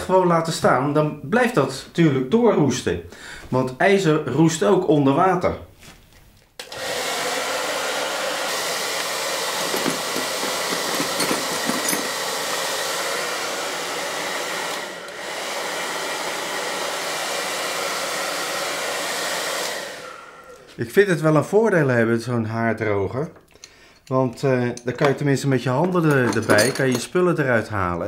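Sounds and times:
hair dryer running: 0:06.6 - 0:20.8
metal tools clinking: 0:09.8 - 0:12.2, 0:25.8 - 0:27.2.

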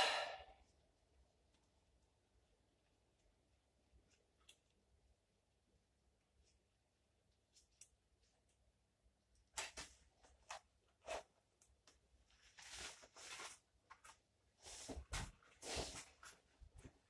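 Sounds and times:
clothing rustling: 0:09.5 - 0:17.0.

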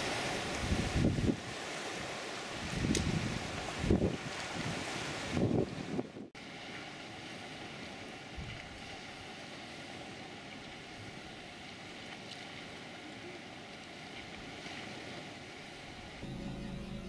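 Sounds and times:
outdoor ambient noise: 0:00.0 - 0:17.0
faint steady hum: 0:16.2 - 0:17.0.

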